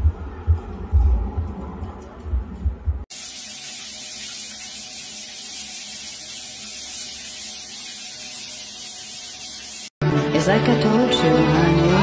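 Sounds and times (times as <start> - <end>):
shower water spray hissing: 3.1 - 10.0.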